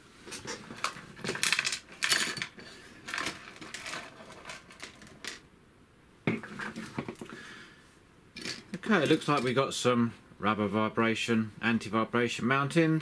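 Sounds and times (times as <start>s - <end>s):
small parts clattering onto a mat: 0.3s - 5.4s.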